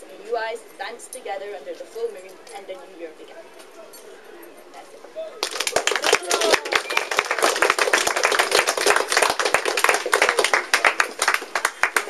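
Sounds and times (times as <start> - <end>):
people applauding: 5.4 - 12.0.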